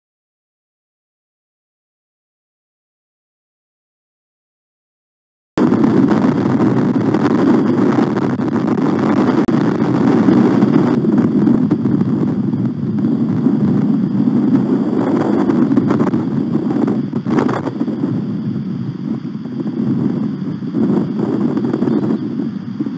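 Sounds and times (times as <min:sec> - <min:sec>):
wind buffeting microphone: 0:05.6 - 0:22.9.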